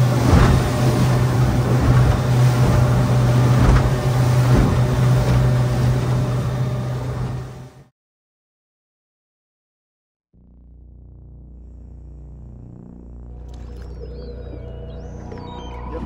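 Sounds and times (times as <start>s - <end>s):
hull thudding on waves: 0.0s - 7.7s
water rushing past hull: 0.0s - 7.8s
outboard motor running: 0.0s - 7.9s, 10.4s - 16.0s.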